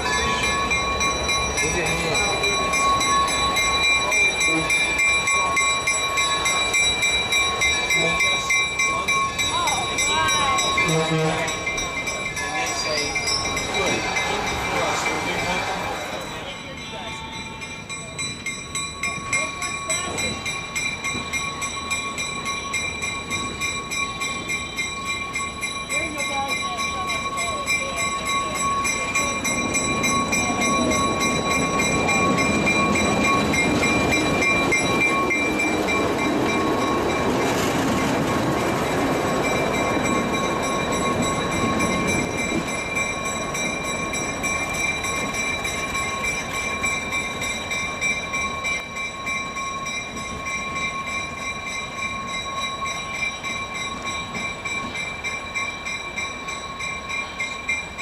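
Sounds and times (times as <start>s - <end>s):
diesel locomotive engine rumble: 0.0s - 58.0s.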